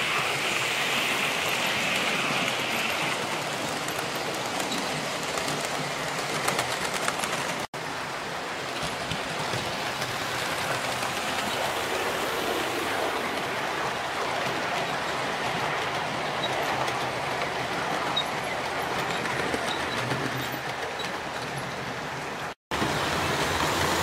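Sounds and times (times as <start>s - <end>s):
model train wheels rumbling: 0.0s - 7.7s
faint rapid clicks: 3.9s - 7.7s.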